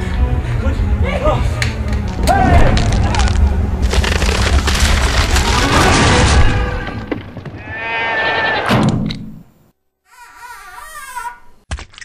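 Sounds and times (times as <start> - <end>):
sheep bleating: 7.7 - 8.7.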